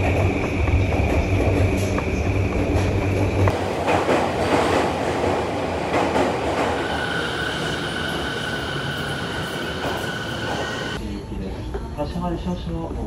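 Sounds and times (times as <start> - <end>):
train wheels rumbling: 0.0 - 11.0
high brake squeal: 6.8 - 11.0.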